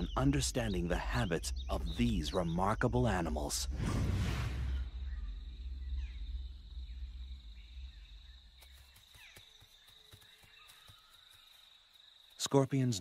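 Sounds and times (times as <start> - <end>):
low rumble: 0.0 - 8.6.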